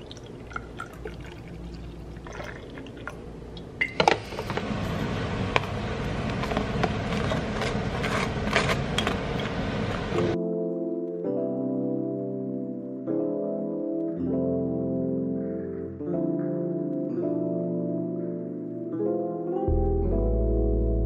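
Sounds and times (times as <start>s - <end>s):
coffee pouring into cup: 0.0s - 3.2s.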